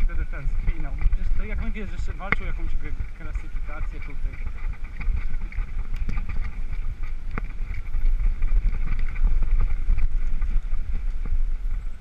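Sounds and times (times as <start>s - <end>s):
bike rattling: 0.0s - 12.0s
wind rumbling on microphone: 0.0s - 12.0s.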